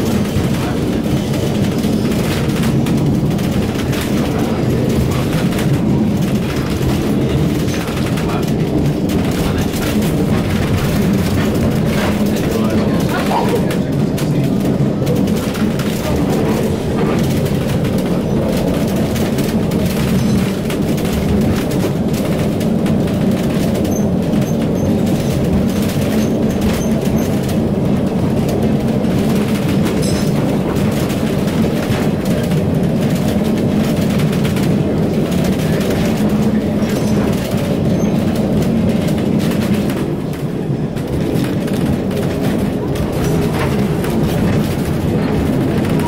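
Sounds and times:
tram rumbling on rails: 0:00.0 - 0:46.0.

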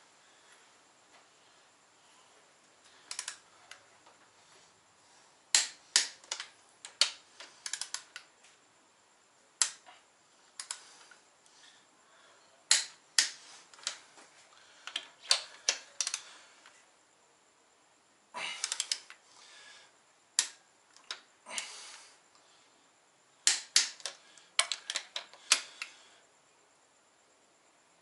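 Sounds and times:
torque wrench clicking: 0:03.1 - 0:03.4, 0:05.5 - 0:08.2, 0:10.6 - 0:10.8.

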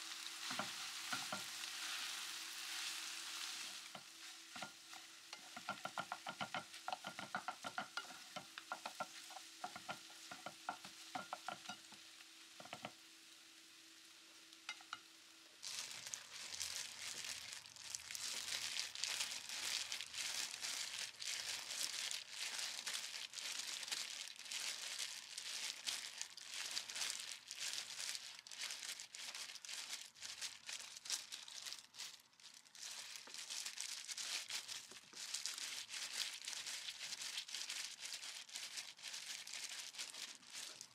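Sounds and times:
plastic gloves crinkling: 0:00.0 - 0:13.0, 0:14.0 - 0:40.9
light sizzle: 0:00.0 - 0:40.9
spatula scraping frying pan: 0:00.3 - 0:12.0, 0:12.6 - 0:13.0.

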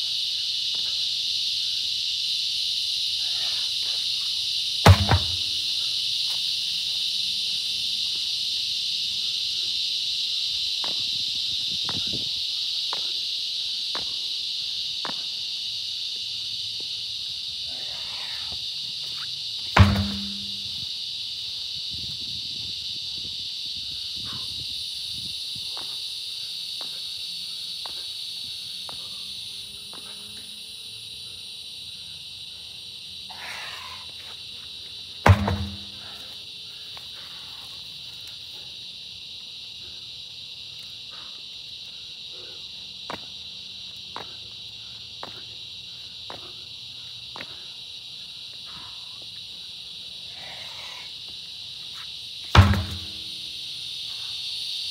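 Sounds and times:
high insect chorus: 0:00.0 - 0:54.9
tire thudding on concrete: 0:04.8 - 0:06.4, 0:18.4 - 0:21.0, 0:34.9 - 0:36.4, 0:52.0 - 0:54.0.

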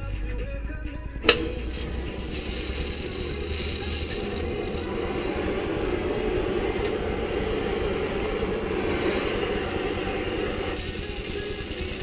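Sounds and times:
gas torch flame rushing: 0:01.2 - 0:12.0.

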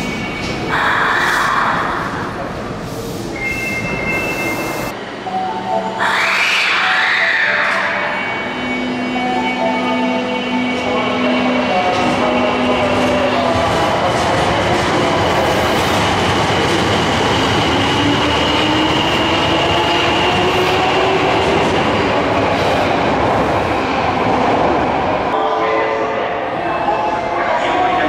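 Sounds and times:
train wheels on rails: 0:10.7 - 0:24.8.

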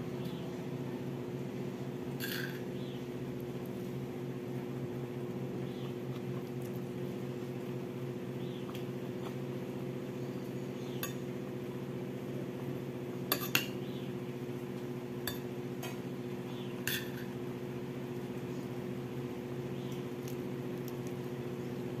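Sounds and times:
constant low hum: 0:00.0 - 0:22.0
metal spoon clinking on bowl: 0:13.3 - 0:13.7.

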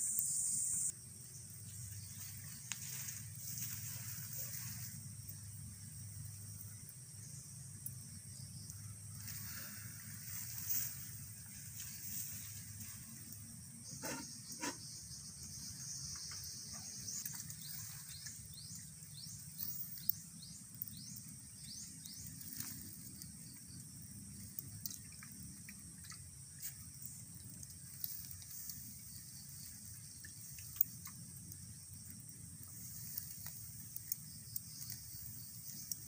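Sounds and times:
high insect drone: 0:00.0 - 0:36.0.

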